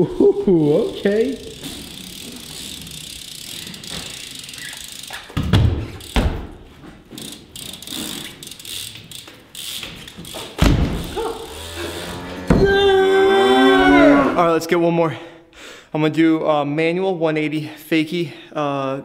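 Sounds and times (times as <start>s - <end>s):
heavy thuds of wheels landing: 10.5s - 11.2s.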